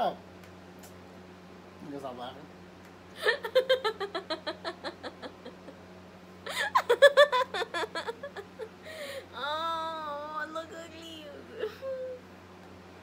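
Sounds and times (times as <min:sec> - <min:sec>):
woman laughing hard: 0:03.2 - 0:05.8, 0:06.5 - 0:09.3.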